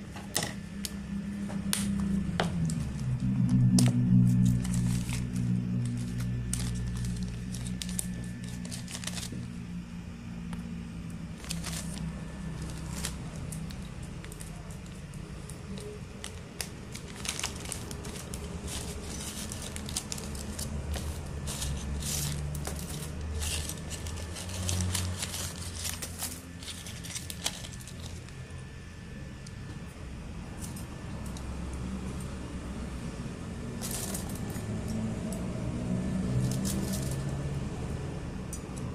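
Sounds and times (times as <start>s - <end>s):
plastic bag crinkling: 4.2s - 9.6s, 11.3s - 28.4s, 33.8s - 34.6s.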